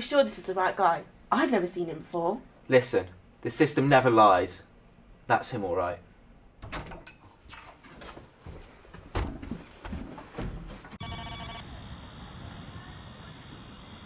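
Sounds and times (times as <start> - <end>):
pulsing electronic ring: 11.0 - 11.6.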